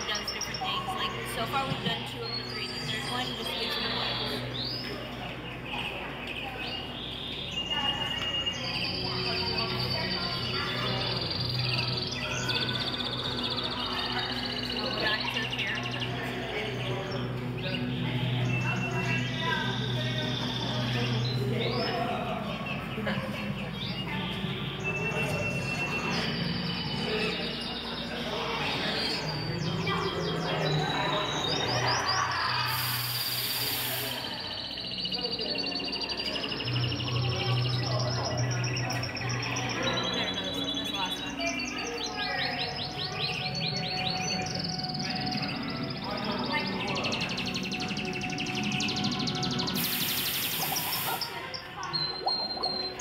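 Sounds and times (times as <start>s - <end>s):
low steady background drone: 0.0s - 53.0s
canary trills and chirps: 2.0s - 22.1s, 23.7s - 53.0s
bright hissing shimmer: 32.6s - 34.5s, 49.7s - 51.4s.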